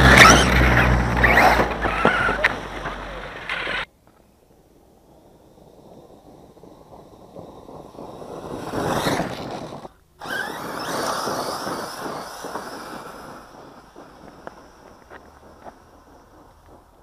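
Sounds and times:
tyres churning dirt: 0.0s - 3.9s, 5.5s - 17.0s
gravel ticks: 0.0s - 17.0s
electric motor whine: 5.1s - 16.9s.

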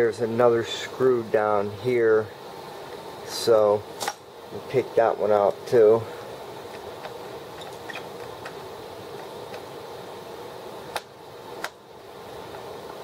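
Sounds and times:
steady background hum: 0.0s - 13.0s.

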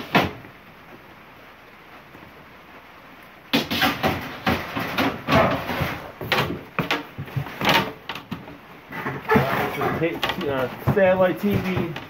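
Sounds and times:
junk scraping and clattering: 3.8s - 12.0s.

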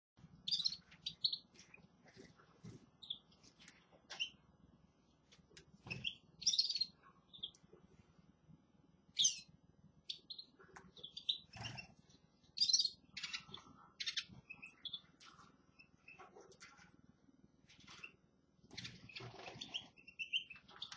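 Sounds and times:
finches chirping: 0.4s - 1.8s, 3.0s - 4.5s, 5.9s - 7.6s, 9.2s - 16.4s, 17.7s - 20.9s.

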